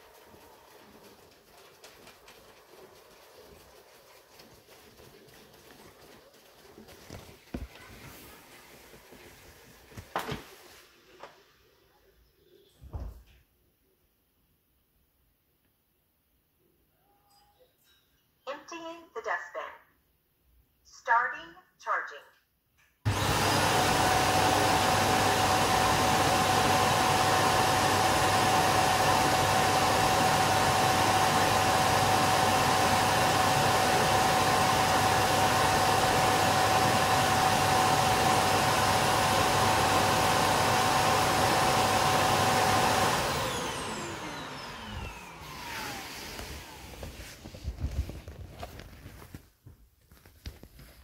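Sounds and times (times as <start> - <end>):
suction motor whining: 43.3 - 47.0.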